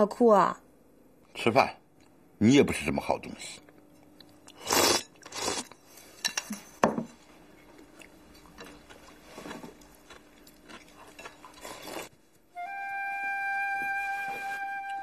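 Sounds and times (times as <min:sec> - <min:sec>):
people slurping and chewing: 0:03.7 - 0:06.8, 0:07.4 - 0:12.4, 0:13.5 - 0:15.0.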